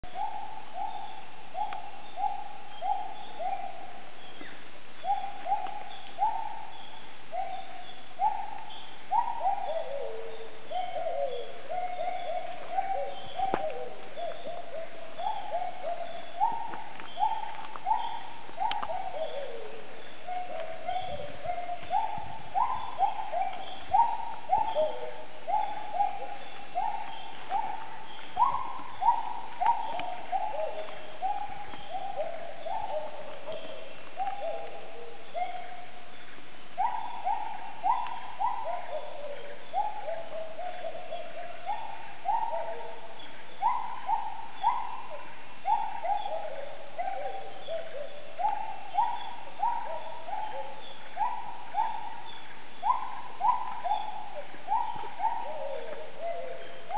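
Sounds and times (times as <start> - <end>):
gibbons hooting: 36.8 - 56.9.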